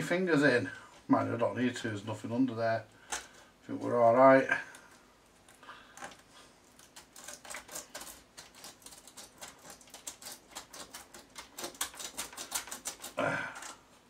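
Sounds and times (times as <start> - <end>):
clicking and scraping of hand work: 3.0 - 4.0, 4.6 - 14.0.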